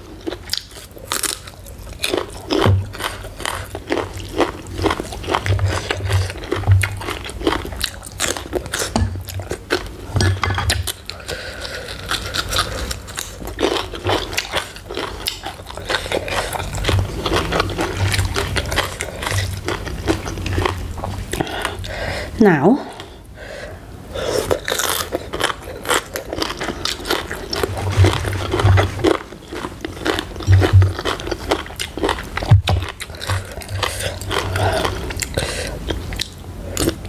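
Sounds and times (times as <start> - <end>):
crunchy chewing: 0.0 - 21.9, 24.2 - 37.0.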